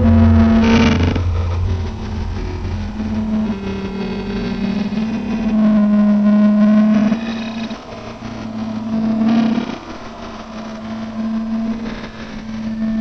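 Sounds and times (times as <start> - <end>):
deep rumble: 0.0 - 13.0
distorted noise haze: 0.0 - 13.0
low drone with bending tones: 0.0 - 13.0.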